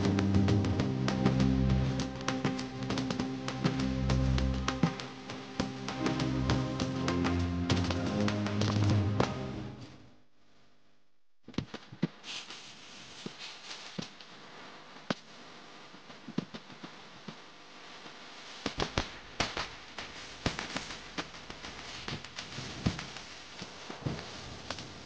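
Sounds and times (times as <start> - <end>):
steady noisy background: 0.0 - 9.8
sharp pops and cracks: 16.1 - 17.4, 18.6 - 25.0.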